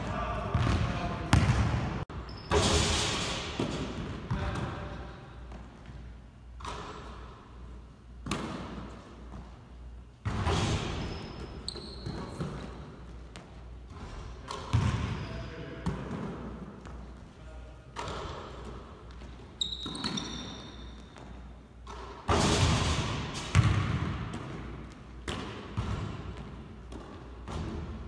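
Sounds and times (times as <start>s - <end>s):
basketball bouncing on gym floor: 0.5s - 2.9s, 8.2s - 9.6s, 10.2s - 15.2s, 18.0s - 28.0s.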